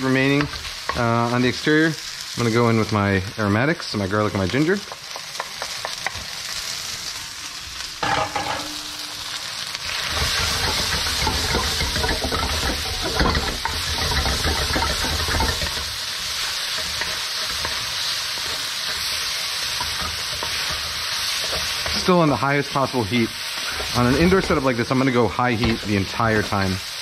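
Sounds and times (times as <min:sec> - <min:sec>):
meat sizzling in hot oil: 0:00.0 - 0:27.0
wooden spatula stirring and scraping: 0:09.9 - 0:26.8.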